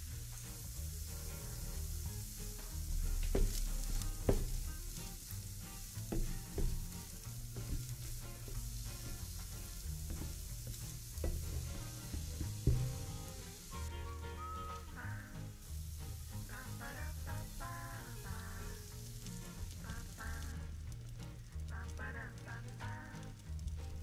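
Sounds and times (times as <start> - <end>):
food sizzling in pan: 0.0 - 24.0
utensil knocking against pan: 3.2 - 5.0, 6.1 - 13.3.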